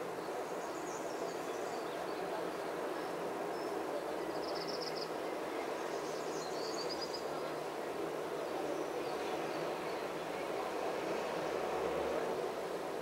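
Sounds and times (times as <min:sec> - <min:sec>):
outdoor background noise: 0:00.0 - 0:13.0.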